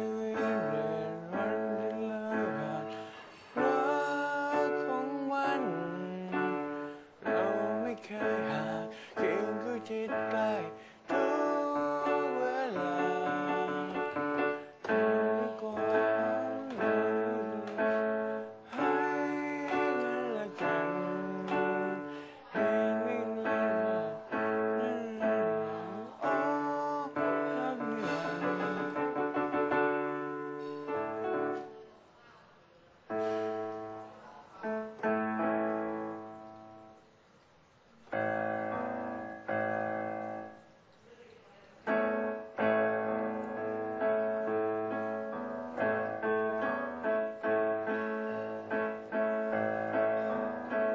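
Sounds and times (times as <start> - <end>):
man singing: 0.0 - 29.8
digital piano: 0.0 - 32.2, 32.9 - 50.9.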